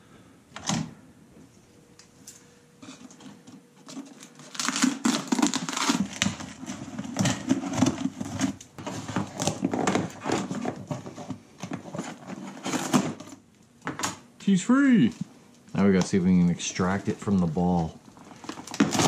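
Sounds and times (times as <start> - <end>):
plastic wrap crinkling: 3.8 - 13.5, 16.6 - 19.0.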